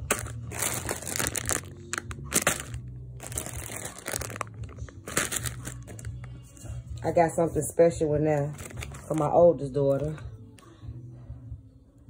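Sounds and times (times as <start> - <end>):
plastic packaging crinkling: 0.0 - 6.3, 8.5 - 9.3.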